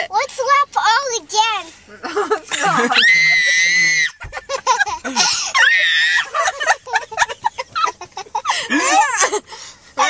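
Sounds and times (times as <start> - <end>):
people shrieking and squealing: 2.6 - 4.3, 5.2 - 6.6.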